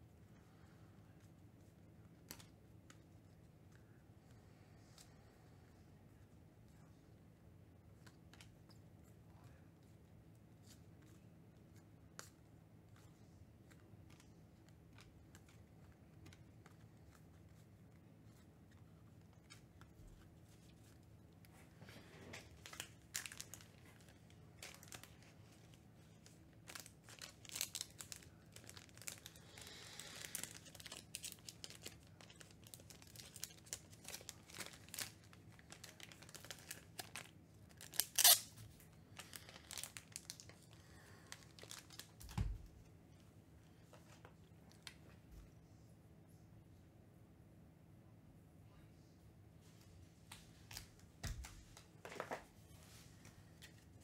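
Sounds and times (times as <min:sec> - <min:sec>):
cards being handled: 0:10.5 - 0:40.6
wrappers tearing and crinkling: 0:22.4 - 0:42.4.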